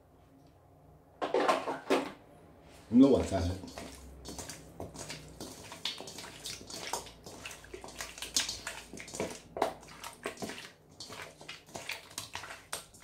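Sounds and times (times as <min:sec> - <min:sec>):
wet squelches of meat mixed by hand: 0:03.2 - 0:13.0.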